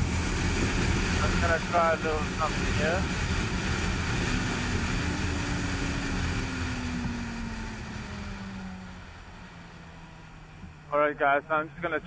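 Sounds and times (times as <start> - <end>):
wind rush: 0.0 - 9.1
motorcycle engine slowing: 0.0 - 12.0.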